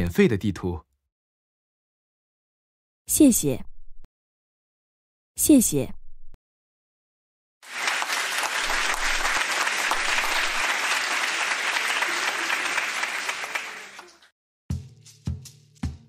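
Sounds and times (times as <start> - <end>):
crowd applause: 7.6 - 14.3.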